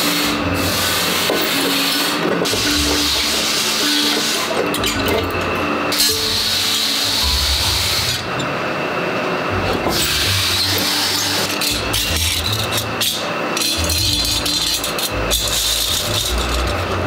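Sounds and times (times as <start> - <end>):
workshop machinery rumble: 0.0 - 17.0
metal blades clinking and scraping: 1.2 - 7.0, 9.9 - 16.8.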